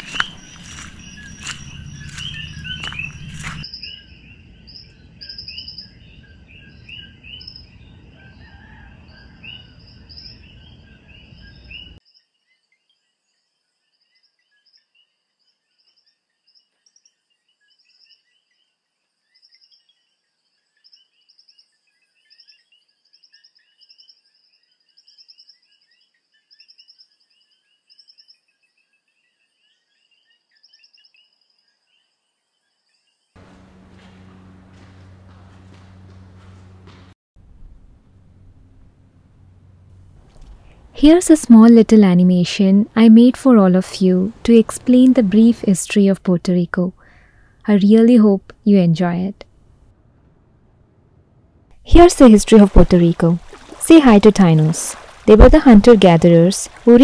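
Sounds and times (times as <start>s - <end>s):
insects chirping: 0.0s - 8.6s, 33.4s - 42.3s, 52.0s - 57.0s
frogs chirping: 0.0s - 12.0s, 33.4s - 37.1s, 52.6s - 56.9s.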